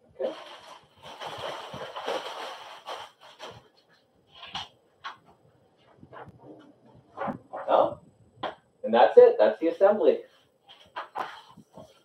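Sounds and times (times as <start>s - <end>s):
fabric rustling and scraping: 0.2s - 8.0s, 10.2s - 12.0s.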